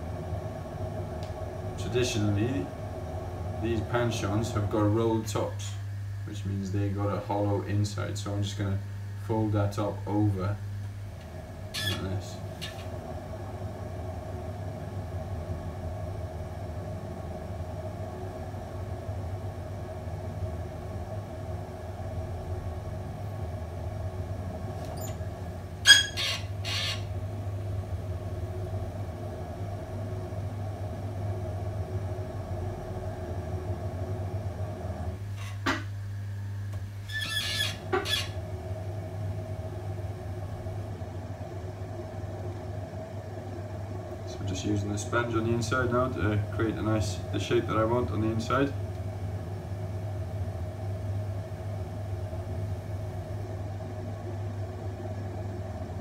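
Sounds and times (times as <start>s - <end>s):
potter's wheel motor humming: 0.0s - 56.0s
short squeaky clicks: 11.7s - 12.8s, 25.8s - 27.1s, 37.1s - 38.4s.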